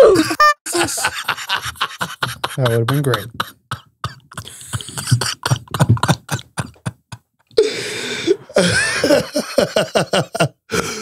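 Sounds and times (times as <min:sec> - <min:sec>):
hearty laughter: 0:00.0 - 0:03.6, 0:04.2 - 0:07.3, 0:08.5 - 0:10.6.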